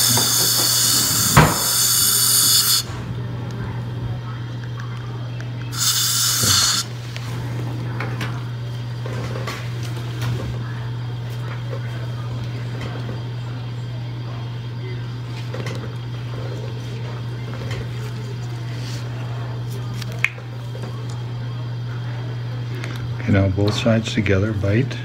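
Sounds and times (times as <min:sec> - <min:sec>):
dental drill whining: 0:00.0 - 0:03.0, 0:05.7 - 0:07.0
steady low hum: 0:00.0 - 0:25.0.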